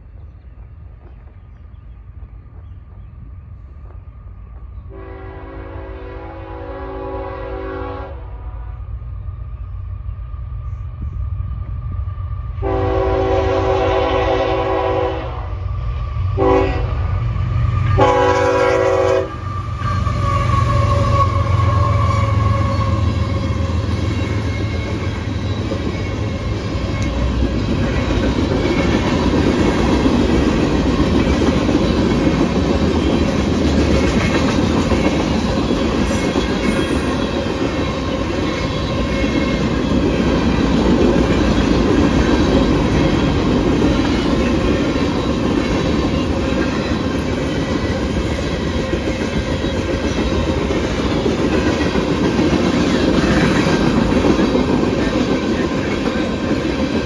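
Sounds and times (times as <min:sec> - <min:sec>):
locomotive horn blasts: 0:04.9 - 0:08.8, 0:12.6 - 0:15.6, 0:16.4 - 0:17.0, 0:18.0 - 0:23.6
train wheels clattering over rails: 0:17.9 - 0:57.0.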